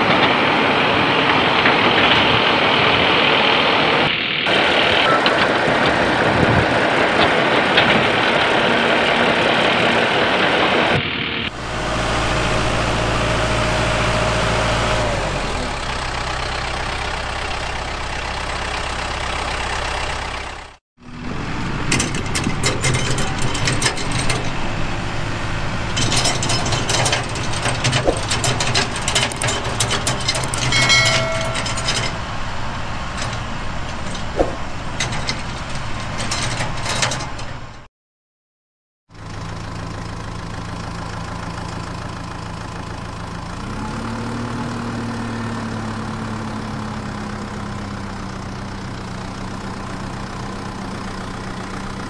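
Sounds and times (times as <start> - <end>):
engine idling: 11.5 - 37.8
roof tiles clinking: 28.2 - 32.5.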